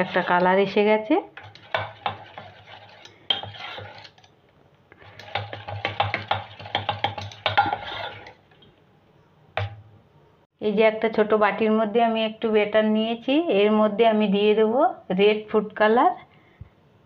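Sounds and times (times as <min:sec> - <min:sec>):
metal spoon stirring batter in bowl: 0:00.0 - 0:08.7.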